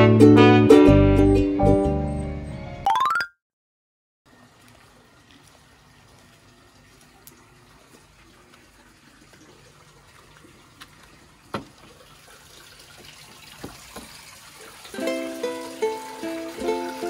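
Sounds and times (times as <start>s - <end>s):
trickle of running water: 4.3s - 17.0s.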